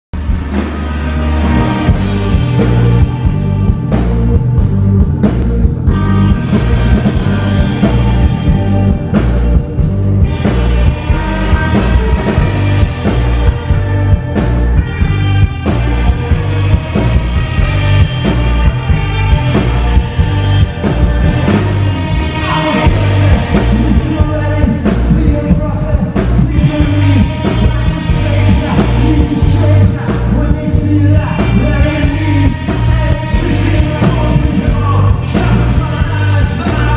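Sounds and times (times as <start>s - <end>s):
bass guitar: 0.1s - 36.9s
drums: 0.1s - 36.9s
electric guitars: 0.2s - 36.9s
person singing: 21.4s - 36.9s.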